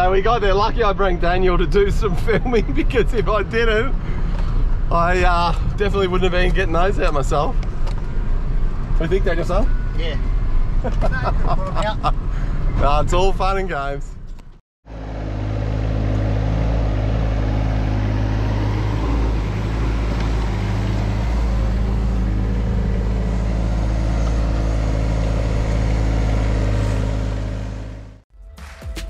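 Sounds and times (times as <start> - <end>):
heavy diesel engine running: 14.9 - 28.2.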